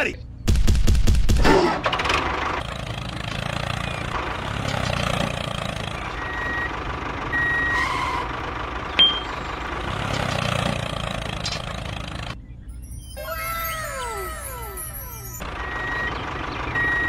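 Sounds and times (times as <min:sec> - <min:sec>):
tractor engine running: 0:00.8 - 0:12.4, 0:14.9 - 0:17.0
reversing beeps: 0:06.2 - 0:06.7, 0:07.3 - 0:07.8, 0:15.1 - 0:17.0.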